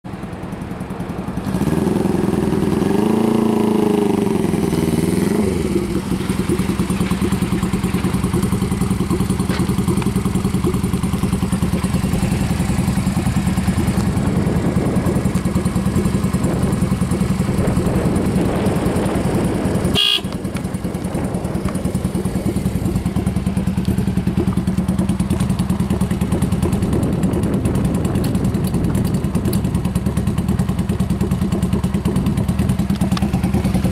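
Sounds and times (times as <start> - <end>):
motorcycle engine revving and idling: 0.1 - 33.9.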